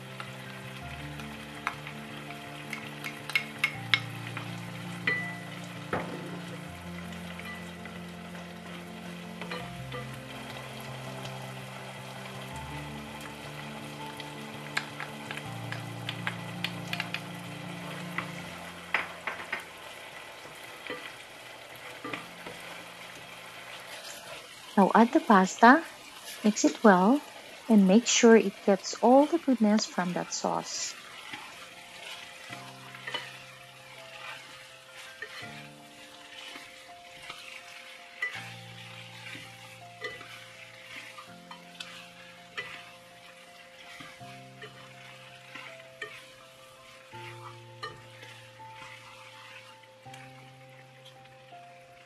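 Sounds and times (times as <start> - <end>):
background music: 0.0 - 52.0
chicken sizzling in a pan: 0.0 - 52.0
utensil clicking against pan: 2.6 - 4.1, 14.7 - 17.3.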